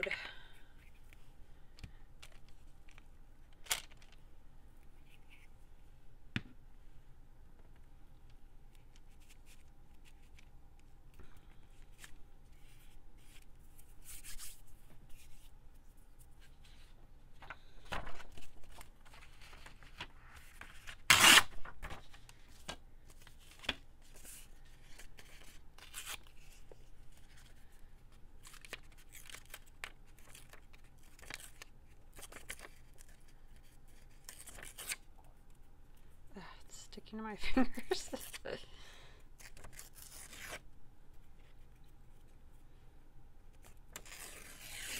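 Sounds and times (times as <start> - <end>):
paper rustling and tearing: 17.4 - 27.6, 28.4 - 35.0, 39.4 - 40.6, 43.6 - 44.9.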